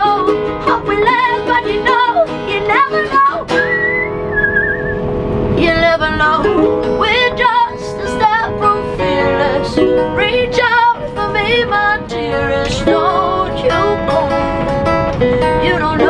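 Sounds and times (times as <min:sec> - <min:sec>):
woman singing: 0:00.0 - 0:03.6, 0:05.6 - 0:14.5, 0:15.5 - 0:16.0
acoustic guitar: 0:00.0 - 0:16.0
ukulele: 0:00.0 - 0:16.0.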